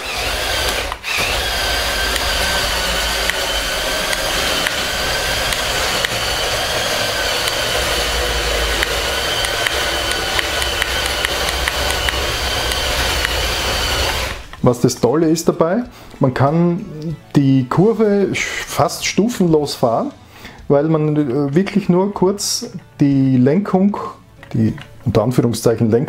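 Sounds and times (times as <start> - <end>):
toy bulldozer motors whining: 0.0 - 14.6.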